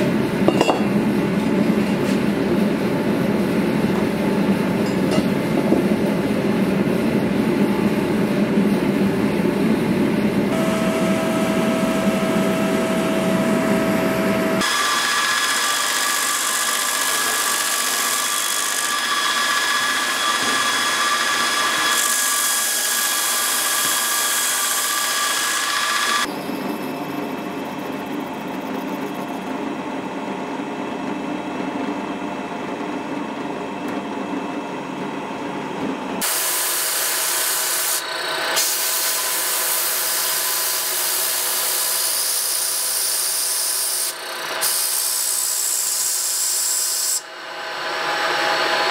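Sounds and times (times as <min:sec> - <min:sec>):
steady tone: 0:10.5 - 0:14.6
grinder wheel whining: 0:10.5 - 0:29.5
drill press boring into wood: 0:14.6 - 0:26.3
power grinder grinding steel: 0:14.6 - 0:26.3.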